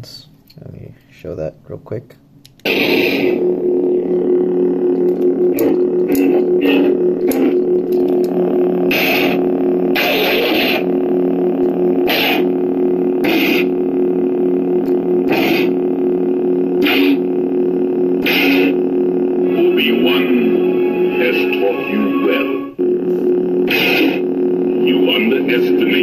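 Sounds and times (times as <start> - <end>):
lightsaber electric hum: 2.4 - 26.0
lightsaber igniting: 2.6 - 3.5, 8.8 - 10.9, 12.0 - 12.5, 18.2 - 18.8.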